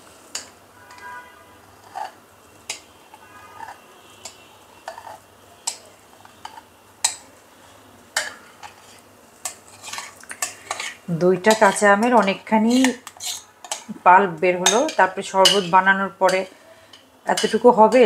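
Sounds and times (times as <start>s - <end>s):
metal spoon clinking on glass: 17.4s - 17.6s.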